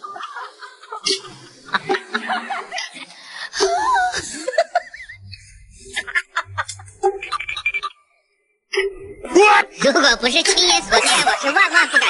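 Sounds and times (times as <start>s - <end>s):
woman laughing: 3.5s - 7.9s.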